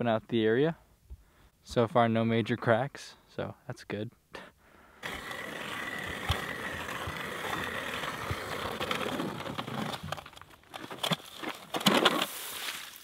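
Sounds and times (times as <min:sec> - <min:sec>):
ice auger grinding through ice: 0:05.0 - 0:12.4
scraping crunches of ice shavings: 0:05.0 - 0:13.0.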